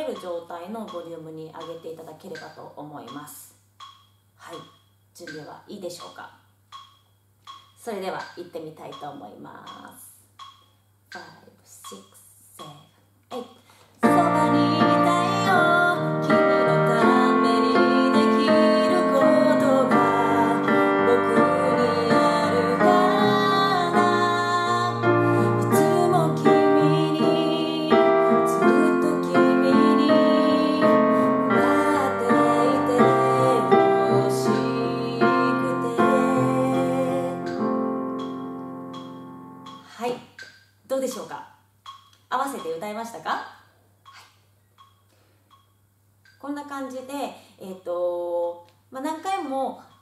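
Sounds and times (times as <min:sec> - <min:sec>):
woman singing: 0:14.0 - 0:38.0
digital piano: 0:14.0 - 0:39.9.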